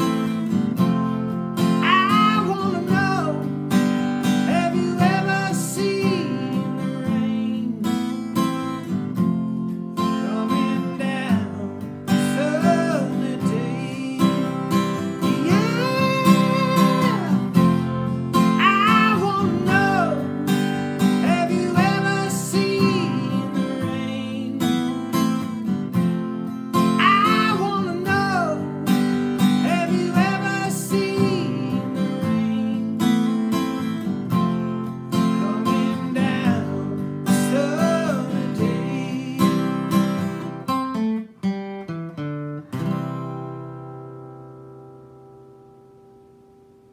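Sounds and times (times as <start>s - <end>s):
acoustic guitar strumming: 0.0s - 46.9s.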